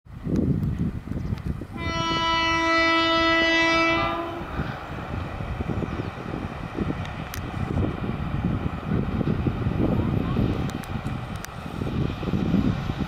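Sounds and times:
locomotive horn blast: 1.8s - 4.6s.

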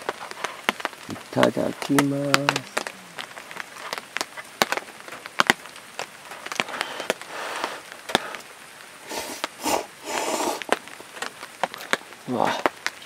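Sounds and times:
person slurping noodles: 9.0s - 10.7s.

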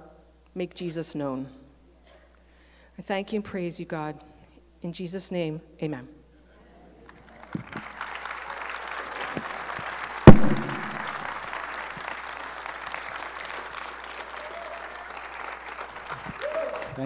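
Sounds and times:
congregation applauding: 7.0s - 17.0s
loud thump: 10.3s - 11.2s.

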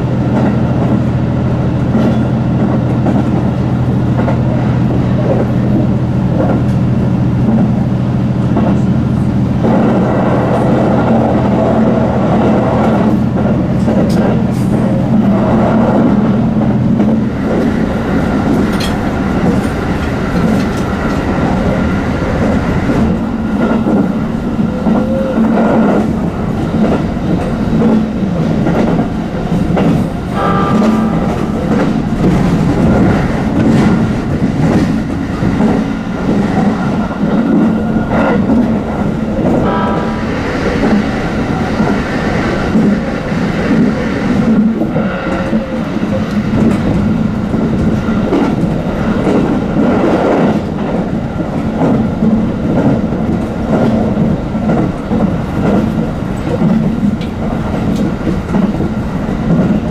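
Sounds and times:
train wheels clicking over rail joints: 12.6s - 59.9s.

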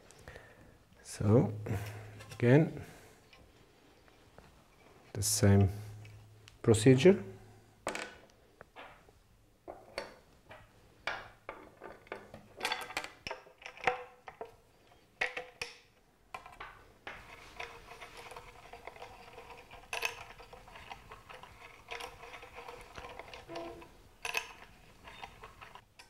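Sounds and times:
light clicks and clinks of handling: 11.5s - 26.0s
held tones: 23.0s - 25.6s.

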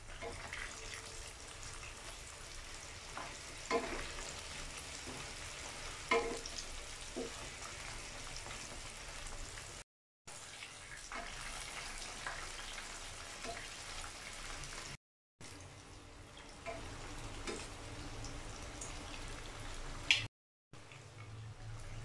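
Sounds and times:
food sizzling in hot oil: 0.0s - 20.3s
spatula knocking against pan: 6.1s - 6.5s.

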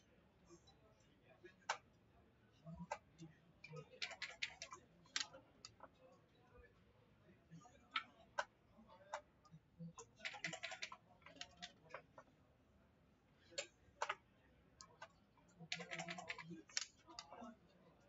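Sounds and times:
checkers clicking on board: 4.0s - 5.4s, 10.2s - 12.0s, 15.7s - 17.3s.

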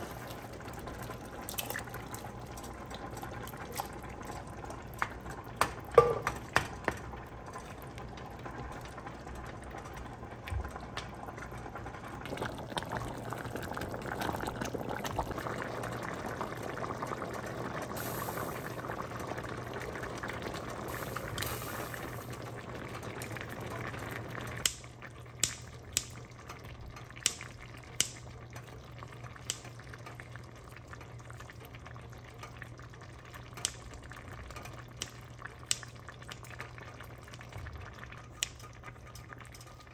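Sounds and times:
sauce simmering and bubbling: 0.0s - 39.9s
utensil knocking against pot: 6.0s - 6.8s.

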